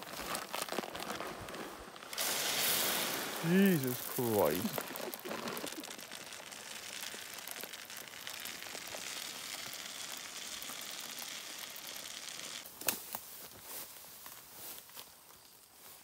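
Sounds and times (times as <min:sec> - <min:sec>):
corn kernels pouring into a barrel: 0:00.0 - 0:12.7.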